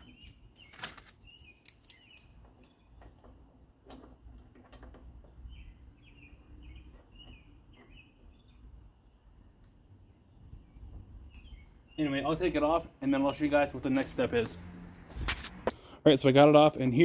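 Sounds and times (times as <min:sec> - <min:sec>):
small birds chirping: 0:00.0 - 0:14.2.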